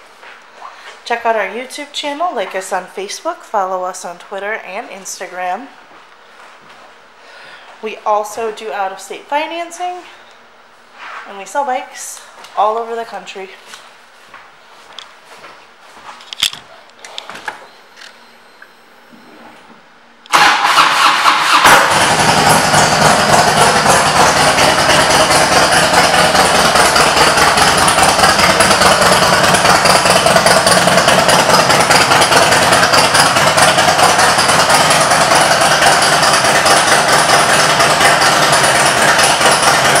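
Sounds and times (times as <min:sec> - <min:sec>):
motorcycle engine idling: 0:20.3 - 0:40.0
motorcycle starter cranking: 0:20.3 - 0:40.0.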